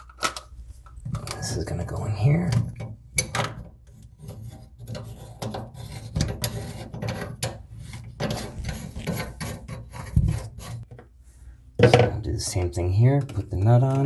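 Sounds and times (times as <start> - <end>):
plastic pipe parts scraping: 0.0 - 11.1.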